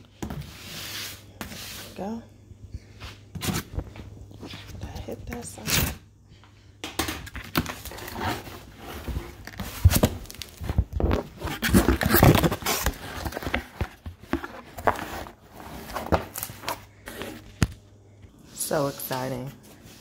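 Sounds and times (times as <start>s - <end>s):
cardboard flaps scraping and crackling: 7.4s - 17.7s.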